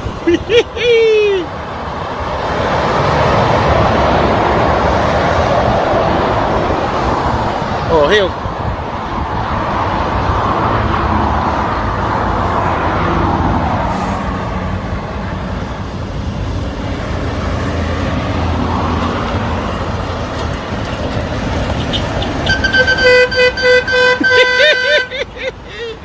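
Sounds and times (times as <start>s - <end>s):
cars passing: 0.0s - 26.0s
truck diesel engine passing: 0.0s - 26.0s
vehicle horn: 21.9s - 25.2s.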